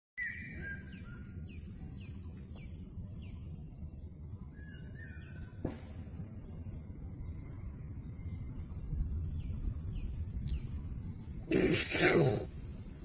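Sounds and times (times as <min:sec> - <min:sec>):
whistled bird notes: 0:00.2 - 0:02.6
high insect drone: 0:00.2 - 0:13.0.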